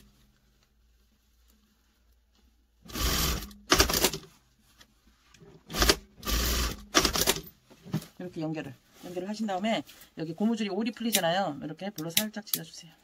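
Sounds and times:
sewing machine stitching: 0:02.9 - 0:04.2, 0:05.7 - 0:07.4.

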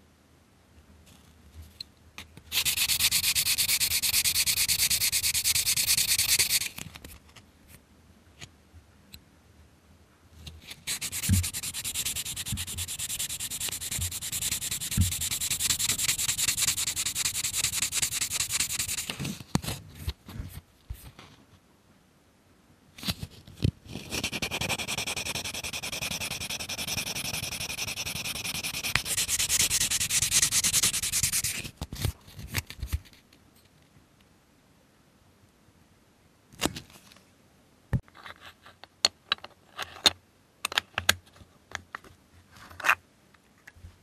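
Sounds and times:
sandpaper on hard plastic: 0:02.5 - 0:06.8, 0:10.7 - 0:19.2, 0:24.0 - 0:31.7.

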